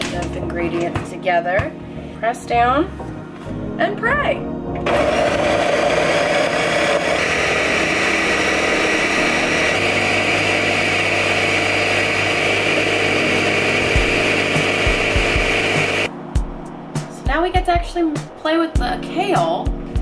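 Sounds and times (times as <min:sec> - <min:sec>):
blender running: 0:04.8 - 0:16.1.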